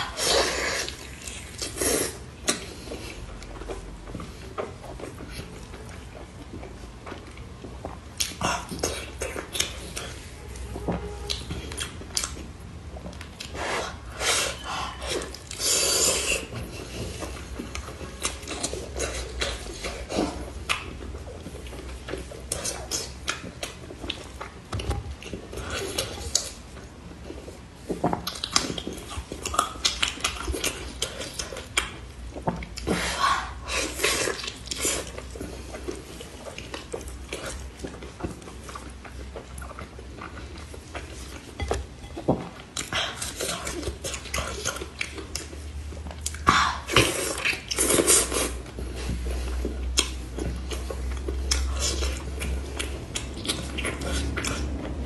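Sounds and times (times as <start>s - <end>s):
chewing and wet mouth sounds: 0.0s - 55.0s.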